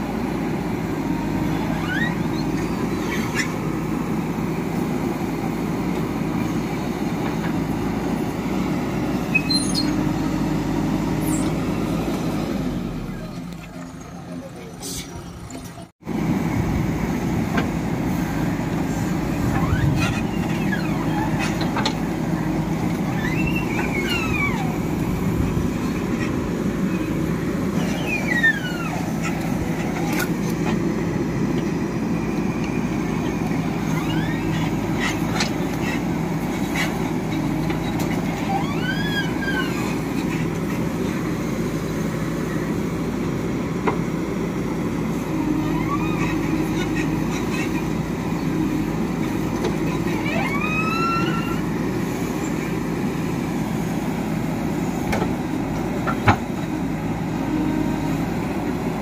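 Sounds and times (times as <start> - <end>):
diesel engine under load: 0.0 - 59.0.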